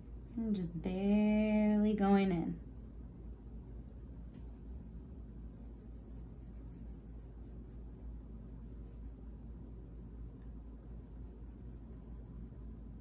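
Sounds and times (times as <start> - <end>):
pencil scratching on paper: 0.0 - 0.8, 4.6 - 13.0
low steady hum: 0.0 - 13.0.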